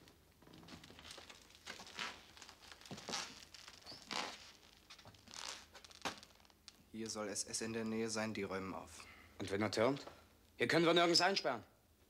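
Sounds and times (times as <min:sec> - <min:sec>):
clothes rustling and scuffing: 0:00.6 - 0:06.4.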